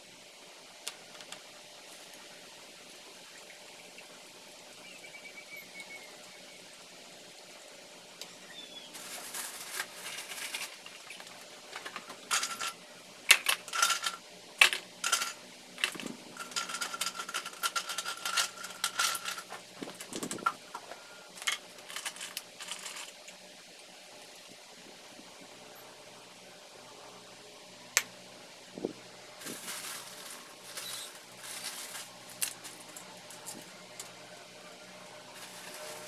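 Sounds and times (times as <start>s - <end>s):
coffee gear clinking on a tabletop: 12.3s - 19.5s.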